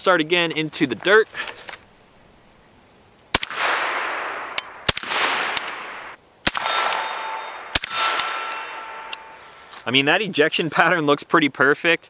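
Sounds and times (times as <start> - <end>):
suppressed rifle shots with echo: 3.3 - 9.4.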